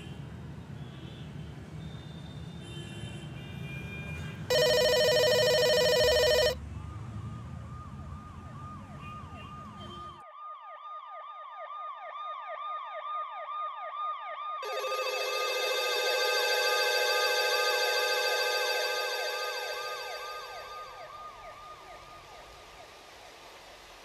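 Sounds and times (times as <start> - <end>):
siren wailing: 10.4 - 22.6
steady electronic tone: 14.6 - 22.1.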